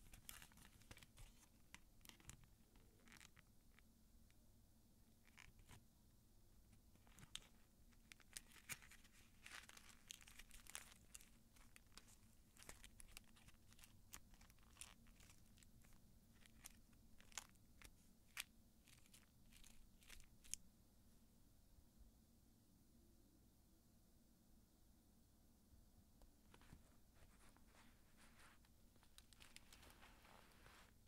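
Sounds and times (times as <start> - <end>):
aluminium foil crinkling: 0.0 - 3.5, 7.0 - 20.6, 29.0 - 30.9.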